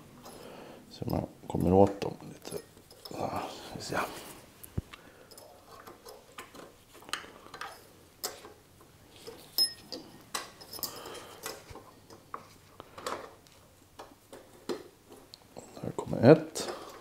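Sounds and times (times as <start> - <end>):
ringing metal clink: 9.5 - 10.0.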